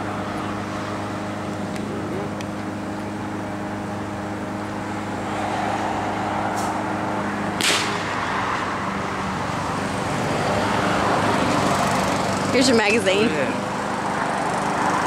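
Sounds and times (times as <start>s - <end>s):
skateboard wheels rolling on asphalt: 0.0s - 12.6s
sharp clack: 7.6s - 8.1s.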